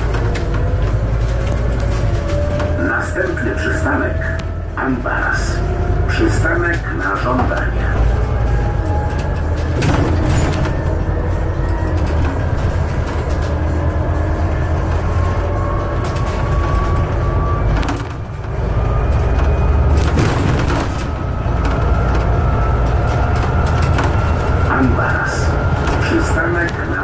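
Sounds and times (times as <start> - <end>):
bus engine and road rumble: 0.0 - 27.0
body rattles and knocks: 6.8 - 26.9.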